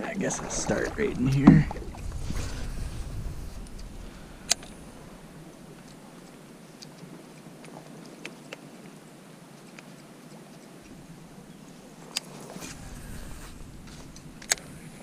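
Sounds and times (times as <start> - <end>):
steady hiss: 0.0 - 7.4, 10.8 - 15.0.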